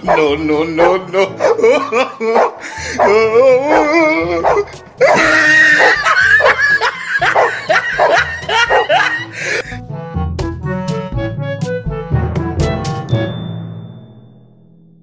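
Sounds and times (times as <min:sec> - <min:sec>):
dog barking: 0:00.1 - 0:04.7, 0:05.7 - 0:06.6, 0:07.2 - 0:09.1
dog yelping: 0:00.1 - 0:09.2
background music with low beat: 0:02.9 - 0:05.1, 0:06.0 - 0:14.9.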